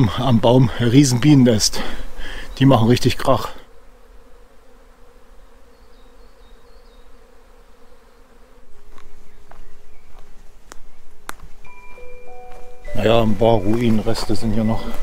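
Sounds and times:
bees buzzing drone: 0.0s - 15.0s
steady tone with sharp pings: 11.6s - 15.0s.

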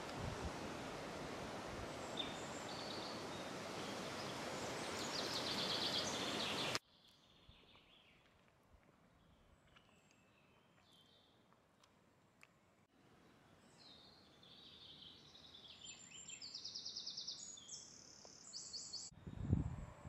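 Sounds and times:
steady outdoor hiss: 0.0s - 20.0s
birds chirping: 1.9s - 8.3s.

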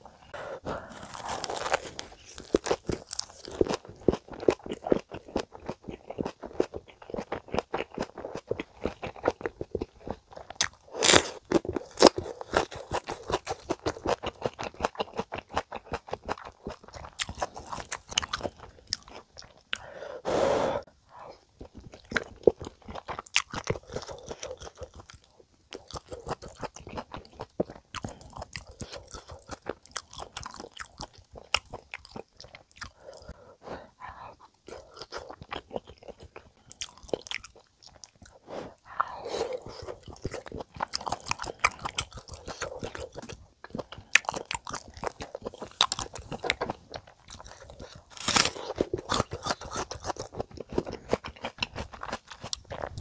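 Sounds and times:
crisp chewing crunches: 0.7s - 19.9s, 21.6s - 33.3s, 34.2s - 53.0s.

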